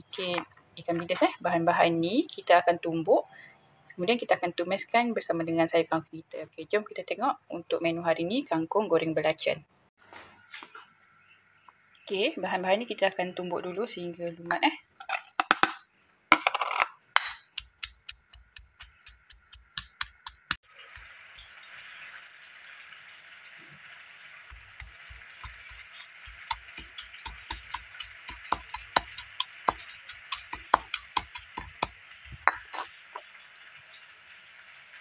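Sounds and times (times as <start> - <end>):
stone pestle pounding in mortar: 17.6 - 20.6, 24.5 - 32.8.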